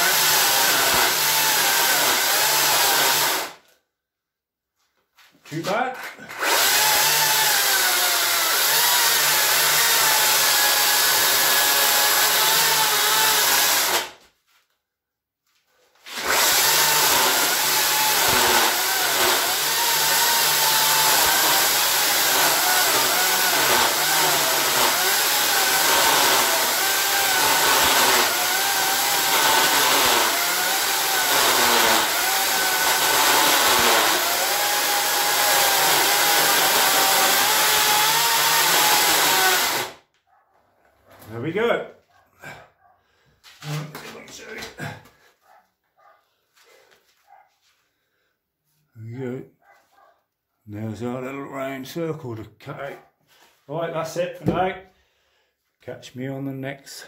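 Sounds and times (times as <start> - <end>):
chainsaw cutting wood: 0.0 - 3.6, 6.2 - 14.2, 16.1 - 40.0.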